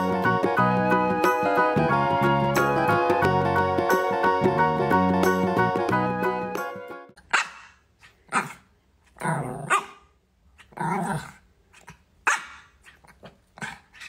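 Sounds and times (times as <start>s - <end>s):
puppy barking: 7.2s - 8.7s, 9.4s - 14.0s.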